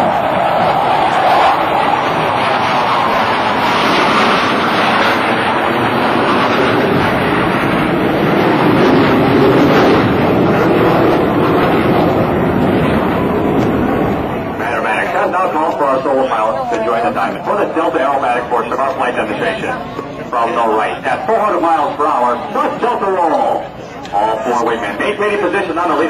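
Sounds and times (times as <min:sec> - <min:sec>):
jet engines roaring overhead: 0:00.0 - 0:26.0.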